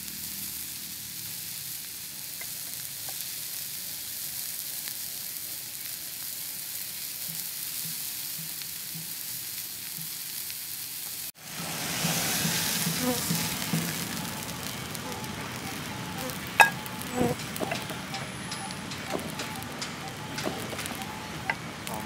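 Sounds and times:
steak sizzling in a frying pan: 0.0 - 22.0.

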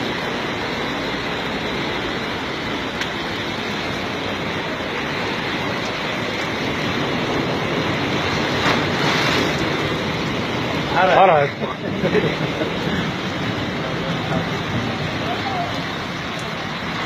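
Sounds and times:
floodwater rushing down street: 0.0 - 17.0.

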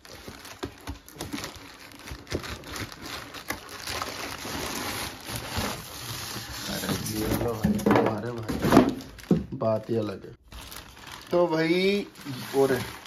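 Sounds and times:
packaging rustling and crinkling: 0.0 - 13.0.

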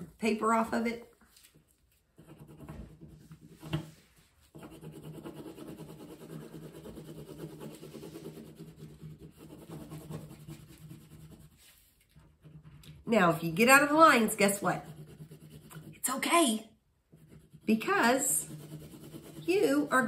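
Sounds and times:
crayon rubbing on paper: 2.1 - 16.4, 17.1 - 20.0.

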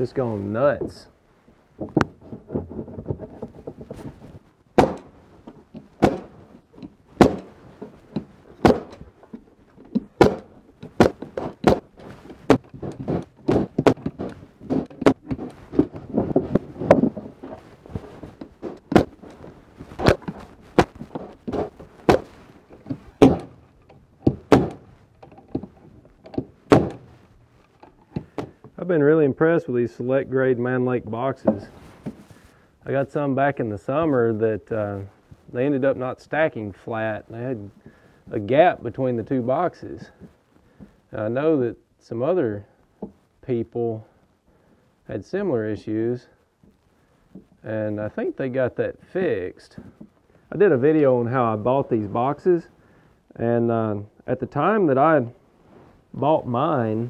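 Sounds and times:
knocks handling wooden box: 1.8 - 28.8, 31.0 - 32.4.

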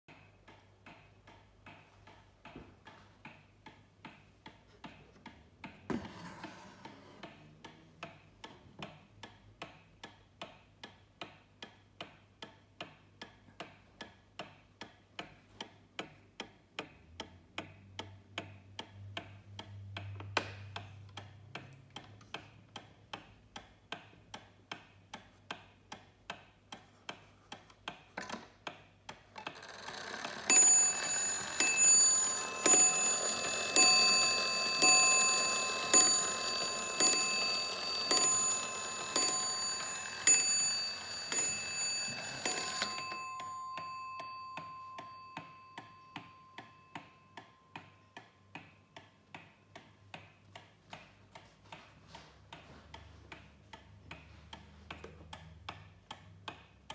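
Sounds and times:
clock ticking: 0.1 - 56.9
clock striking the hour: 27.9 - 50.7.

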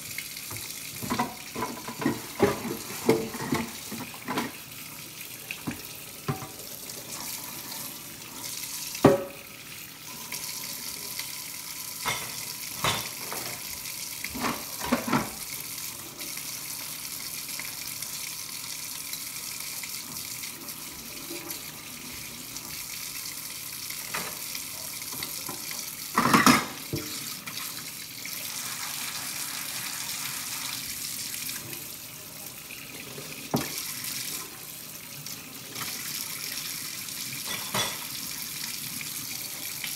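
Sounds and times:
faucet running into sink: 0.0 - 39.9
dishes being scrubbed: 0.5 - 4.6, 12.0 - 15.4, 37.4 - 38.2
dishware clinking: 37.4 - 38.1.

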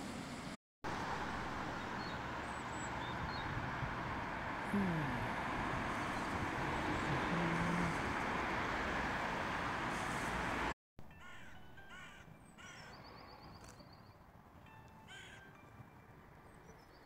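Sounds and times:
steady rushing outdoor noise: 0.0 - 10.7
crows cawing: 11.2 - 13.0, 15.1 - 15.4.

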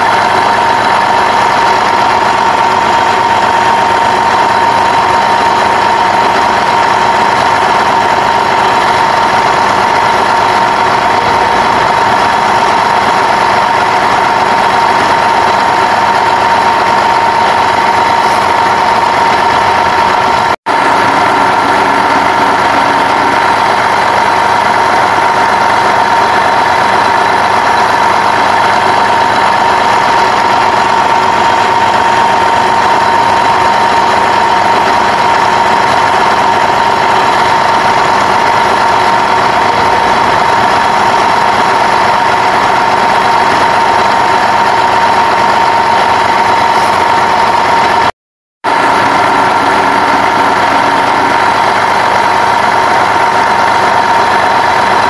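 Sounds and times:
truck engine idling: 0.0 - 55.0.

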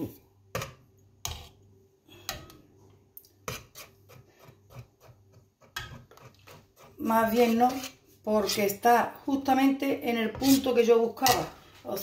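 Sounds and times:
ladle stirring thick cream: 1.2 - 1.6, 3.3 - 8.5.

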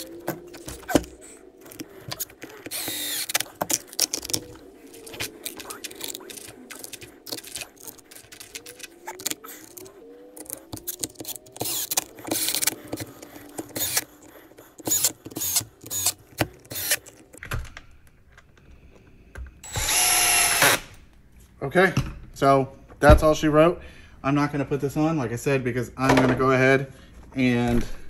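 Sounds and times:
screwdriver clicking and ratcheting: 0.0 - 17.5.

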